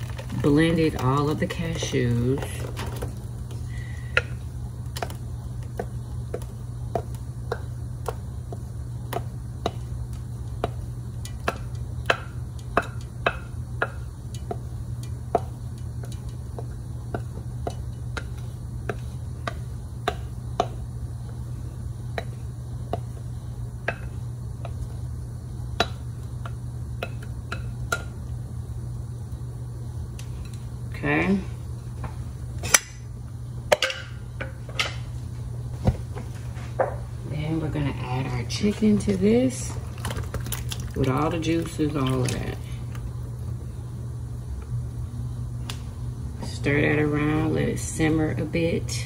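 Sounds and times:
low hum: 0:00.0 - 0:49.0
spatula tapping glass bowl: 0:10.6 - 0:16.4.

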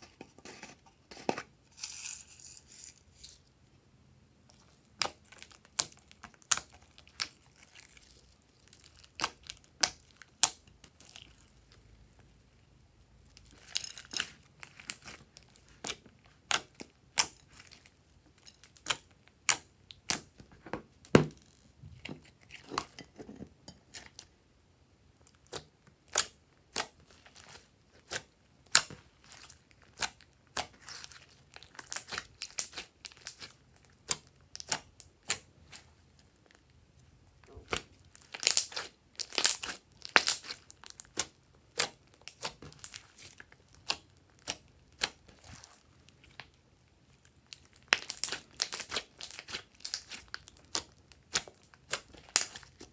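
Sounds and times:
slime crackling and popping: 0:04.5 - 0:11.8, 0:13.4 - 0:20.4, 0:25.3 - 0:36.7, 0:37.4 - 0:52.9.

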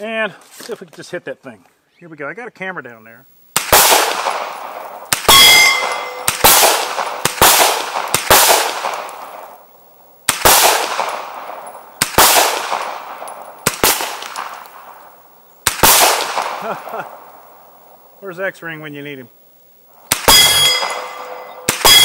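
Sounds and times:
carbine gunshots with echo: 0:03.5 - 0:17.8, 0:19.9 - 0:22.0
steel target plate ringing: 0:05.3 - 0:07.3, 0:20.2 - 0:22.0.

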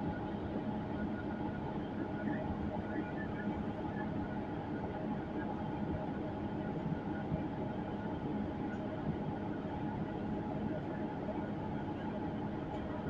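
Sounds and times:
bus engine humming inside cabin: 0:03.6 - 0:13.0.

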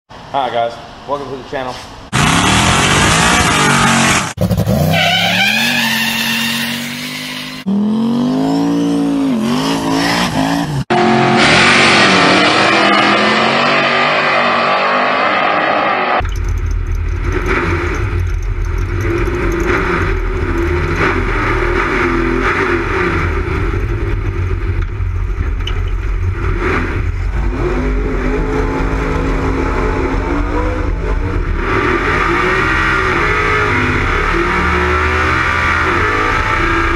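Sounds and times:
race car engines revving: 0:02.1 - 0:36.9
deep engine rumble: 0:16.2 - 0:34.7.

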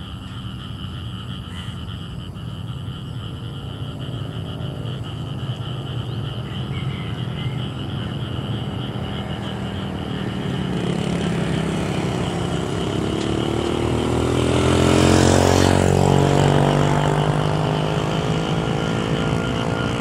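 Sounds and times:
whining engine tone: 0:00.0 - 0:20.0.

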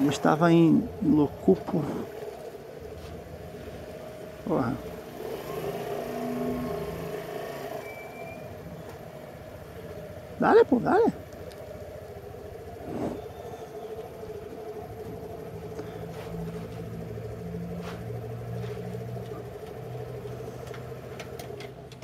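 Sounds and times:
motorcycle engine at low speed: 0:00.0 - 0:22.0
steady hum: 0:08.4 - 0:20.8.

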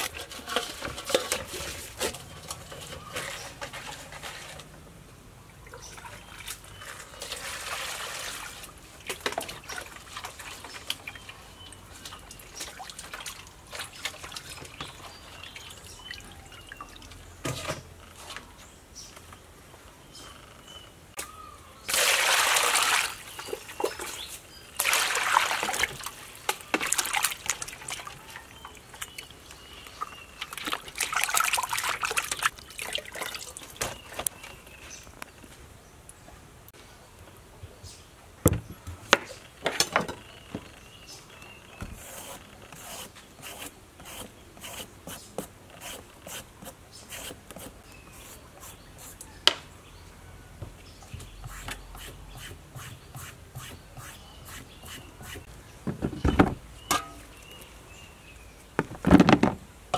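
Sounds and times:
water splashing in a steel basin: 0:05.6 - 0:17.2, 0:21.9 - 0:29.3, 0:30.0 - 0:33.9.

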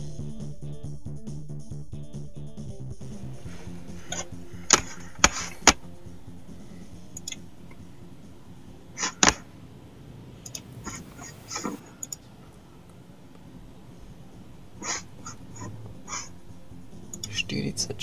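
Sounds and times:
background music: 0:00.0 - 0:18.0
car keys clicking: 0:04.1 - 0:05.8, 0:07.0 - 0:07.8, 0:09.0 - 0:09.5, 0:11.5 - 0:13.6.

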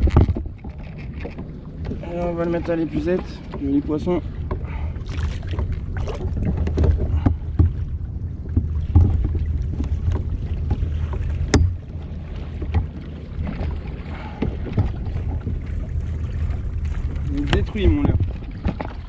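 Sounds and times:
low rumble of water and wind: 0:00.0 - 0:19.0
knocks and clicks on plastic kayak: 0:05.6 - 0:07.8, 0:08.5 - 0:11.9, 0:17.4 - 0:19.0.

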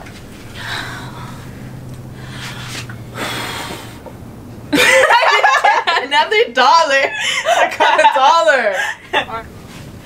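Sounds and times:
loud laughing: 0:04.7 - 0:09.4
voices: 0:04.8 - 0:09.5.

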